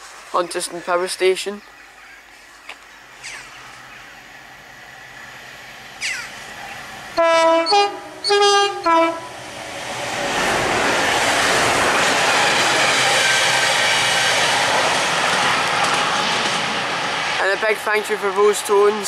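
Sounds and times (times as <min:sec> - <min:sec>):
two-tone locomotive horn: 0:07.2 - 0:09.4.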